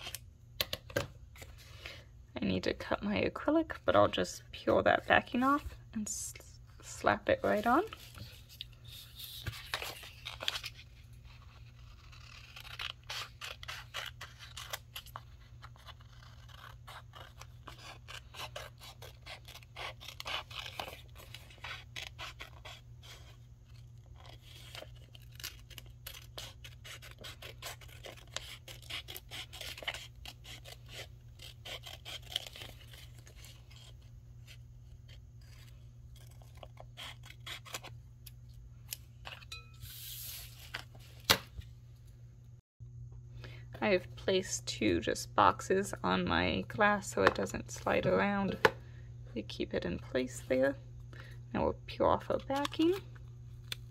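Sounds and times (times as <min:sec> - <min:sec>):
low steady hum: 0:00.0 - 0:53.9
scissors snipping paper: 0:11.6 - 0:34.0.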